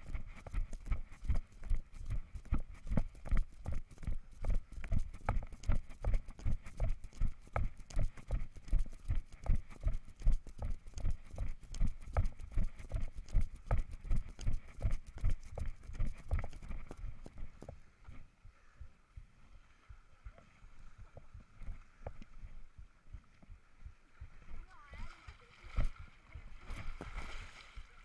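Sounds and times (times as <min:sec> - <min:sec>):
running footsteps on dirt: 0:00.0 - 0:18.2.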